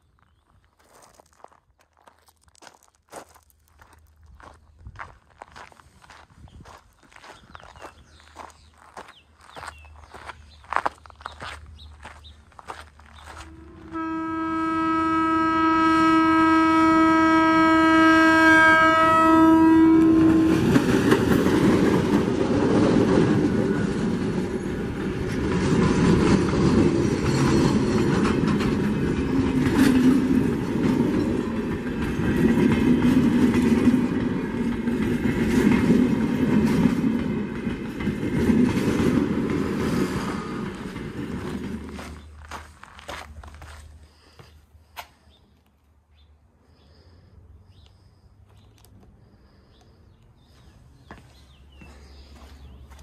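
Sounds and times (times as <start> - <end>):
train horn: 13.4 - 21.2
train wheels clattering on rails: 20.2 - 42.6.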